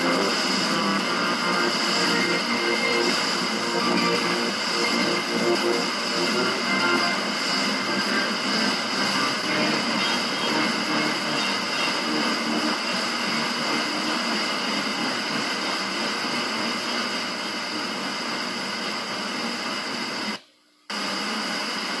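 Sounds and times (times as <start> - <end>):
faint radio station audio: 0.0 - 18.4
radio hiss and static: 0.0 - 22.0.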